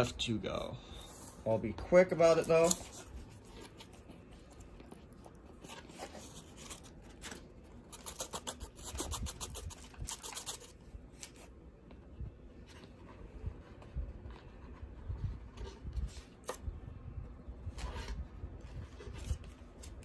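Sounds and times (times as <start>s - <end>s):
foil crinkling and card rustling: 1.9s - 11.6s, 17.7s - 20.0s.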